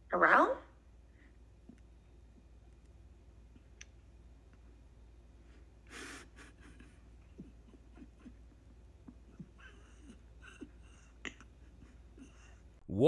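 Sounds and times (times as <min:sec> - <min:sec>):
faint clicks and taps: 0:01.6 - 0:04.7.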